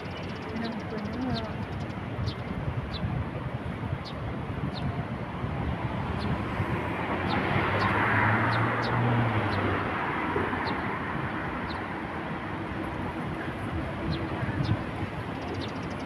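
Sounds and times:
street traffic: 0:00.0 - 0:16.0
vehicle passing: 0:05.8 - 0:15.8.

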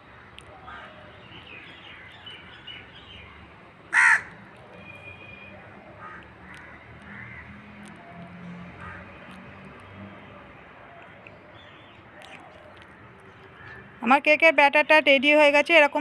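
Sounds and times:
crow cawing: 0:03.9 - 0:04.4, 0:06.0 - 0:07.6, 0:08.8 - 0:09.2.

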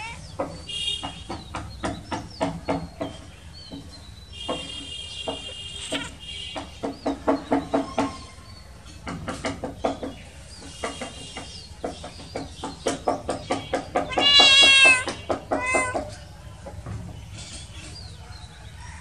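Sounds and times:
cat meowing: 0:00.0 - 0:00.3, 0:05.8 - 0:06.2, 0:14.1 - 0:16.2.

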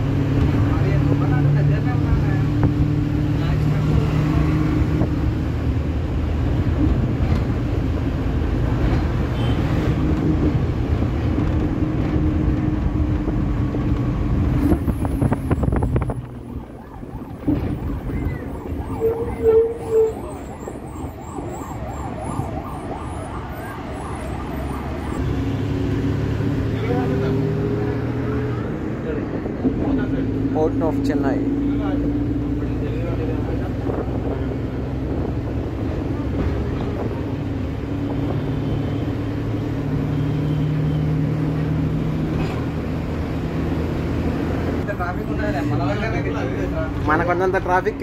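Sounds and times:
bus rumbling: 0:00.0 - 0:48.0
road noise: 0:00.0 - 0:48.0
emergency siren warbling: 0:14.8 - 0:25.4.

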